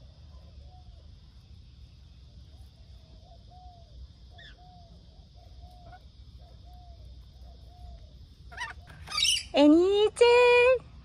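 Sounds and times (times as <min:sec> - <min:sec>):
lorikeets soft short calls: 0:03.1 - 0:09.7.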